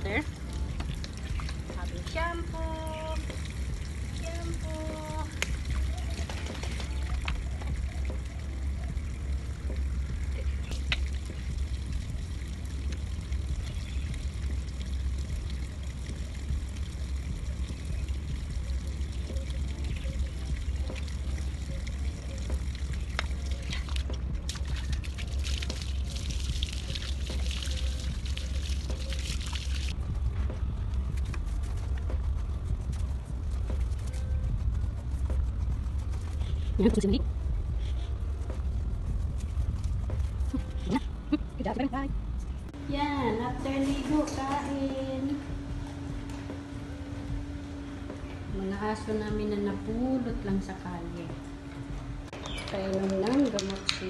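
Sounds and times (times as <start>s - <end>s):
water splashing from a hose: 0.0s - 30.0s
steady low rumble: 0.0s - 54.0s.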